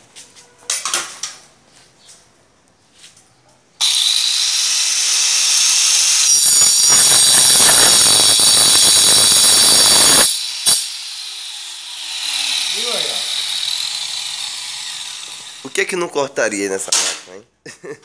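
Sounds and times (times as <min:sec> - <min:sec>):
angle grinder whining: 0:03.8 - 0:15.8
grinder blade cutting steel: 0:03.8 - 0:15.8.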